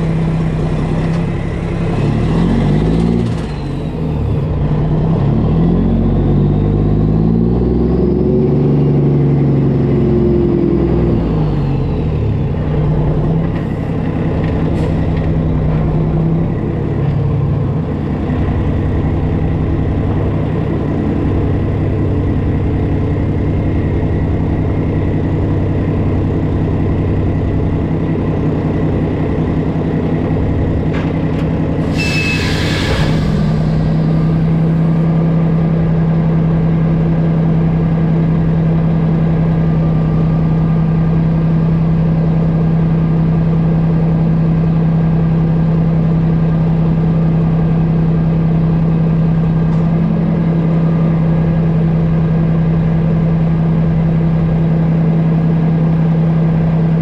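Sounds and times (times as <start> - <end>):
truck diesel engine running: 0.0 - 57.0
air brakes hissing: 31.8 - 35.1.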